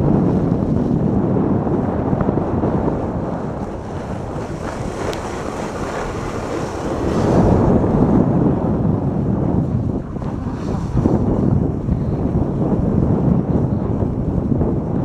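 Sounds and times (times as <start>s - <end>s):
wind rushing on microphone: 0.0s - 15.0s
sled runners scraping over snow: 3.3s - 8.0s, 9.5s - 12.4s.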